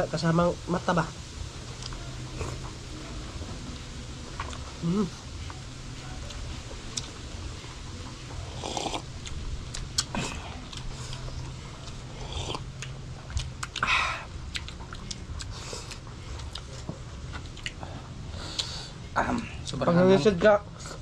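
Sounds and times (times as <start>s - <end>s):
lip smacking and chewing: 8.3s - 17.8s.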